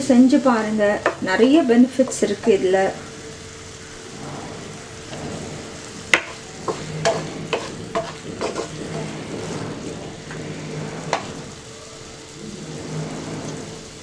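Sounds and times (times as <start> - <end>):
figs sizzling in frying pan: 0.0 - 14.0
wooden spatula knocking pan: 6.1 - 8.9.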